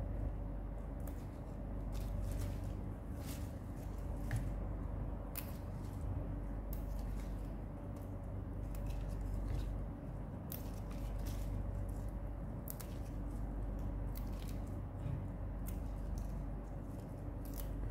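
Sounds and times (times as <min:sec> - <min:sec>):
steady low hum: 0:00.0 - 0:17.9
leaves rustling: 0:01.0 - 0:04.6
crisp stem snaps: 0:05.3 - 0:05.9, 0:17.4 - 0:17.8.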